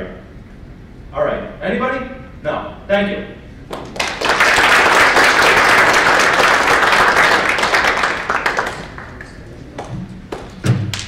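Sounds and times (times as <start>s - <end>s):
audience applause: 3.7s - 9.6s.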